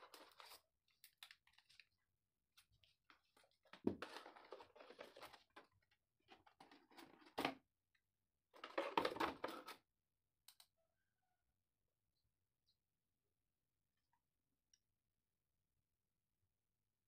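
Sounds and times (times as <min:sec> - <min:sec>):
plastic packaging rustling and clicking: 0:03.1 - 0:07.6.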